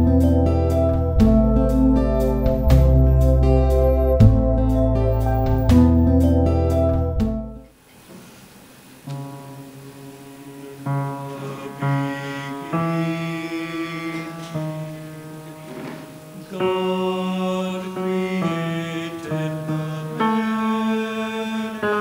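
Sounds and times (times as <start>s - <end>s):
slow music of held notes: 0.0s - 7.8s, 9.0s - 22.0s.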